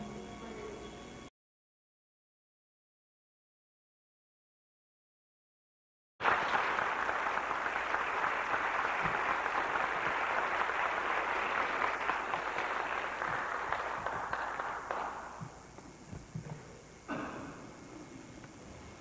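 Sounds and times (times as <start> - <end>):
audience applauding: 6.2 - 15.6.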